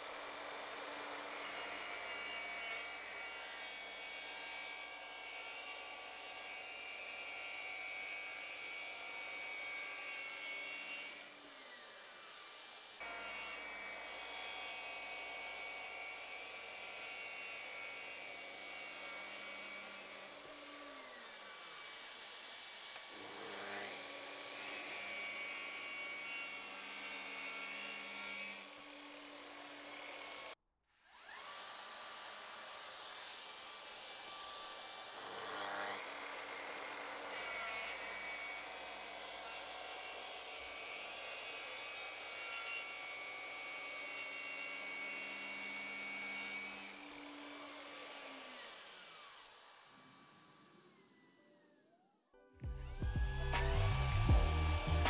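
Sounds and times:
track saw cutting plywood: 0:00.0 - 0:51.7, 0:52.9 - 0:55.0
vacuum cleaner running: 0:22.9 - 0:26.2.

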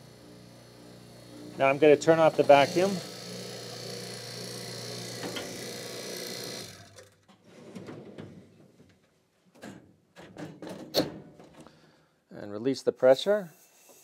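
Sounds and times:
vacuum pump humming: 0:00.0 - 0:06.9.

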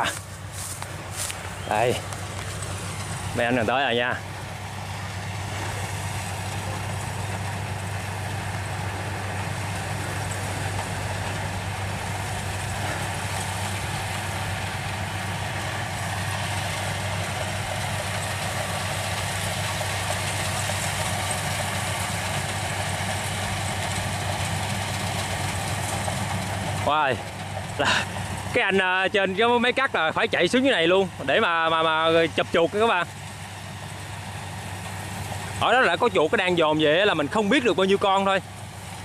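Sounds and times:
harvester engine droning: 0:00.0 - 0:39.0.

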